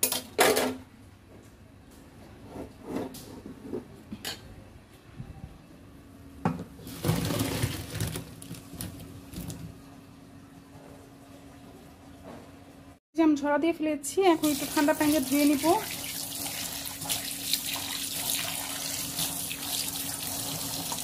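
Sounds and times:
water pouring into colander: 0:14.4 - 0:21.0.

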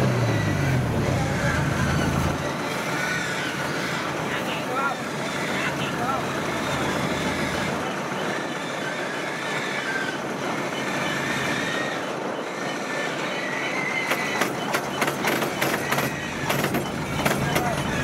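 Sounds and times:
combine harvester running: 0:00.0 - 0:18.0
sharp clicks and clacks: 0:14.1 - 0:18.0.

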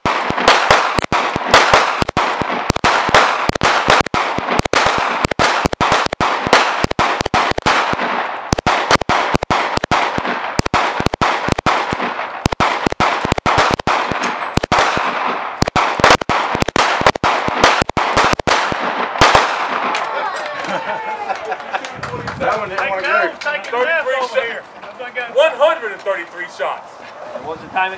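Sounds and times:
handgun shots with echo: 0:00.0 - 0:20.1.

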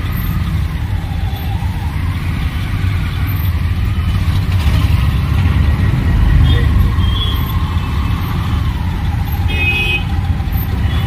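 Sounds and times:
car engines running in traffic: 0:00.0 - 0:11.0.

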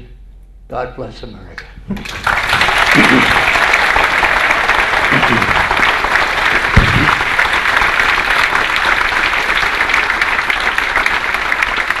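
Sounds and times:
audience applauding: 0:02.0 - 0:12.0
low thump: 0:06.8 - 0:07.3.

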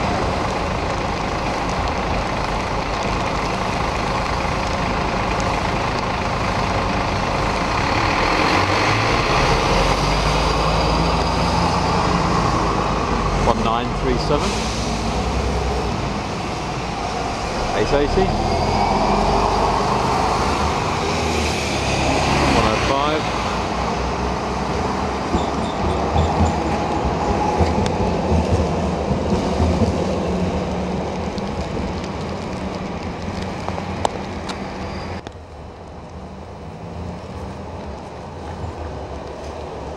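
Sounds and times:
bus diesel engine droning: 0:00.0 - 0:28.0
tram rumbling past: 0:00.0 - 0:39.9
hiss from wet track: 0:14.2 - 0:18.1.

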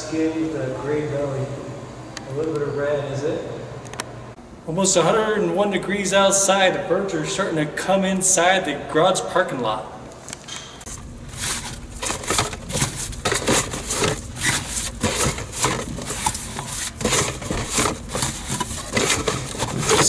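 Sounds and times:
fabric bag rustling and scraping: 0:11.3 - 0:20.0.

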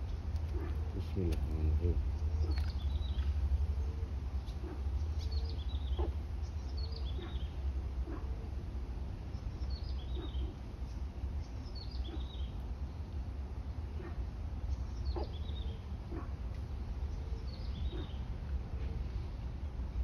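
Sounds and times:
bird chirping: 0:00.0 - 0:08.6, 0:09.2 - 0:13.2, 0:13.9 - 0:16.4, 0:17.0 - 0:19.3
steady low rumble: 0:00.0 - 0:20.0.

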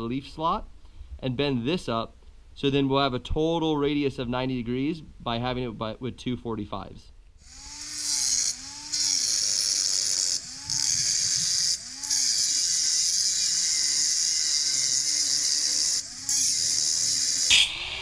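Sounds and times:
angle grinder cutting steel: 0:07.4 - 0:18.0
grinder motor hum: 0:07.4 - 0:18.0.

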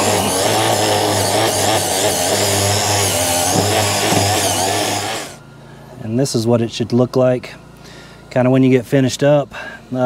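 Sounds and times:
hand grinder grinding steel: 0:00.0 - 0:05.4.

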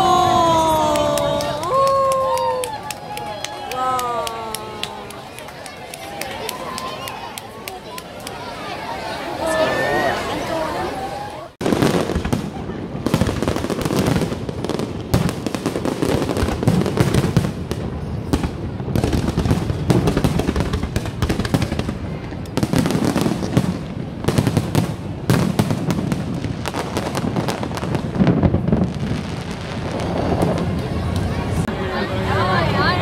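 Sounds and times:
fireworks bursting and crackling: 0:11.6 - 0:31.7.

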